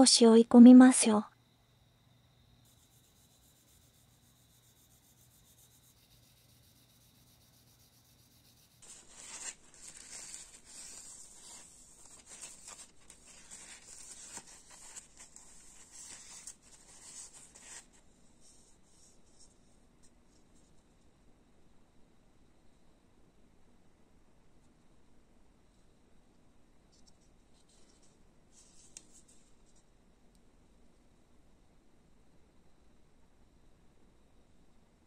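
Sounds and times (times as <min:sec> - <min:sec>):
paper towel wiping plastic: 0:02.7 - 0:19.5.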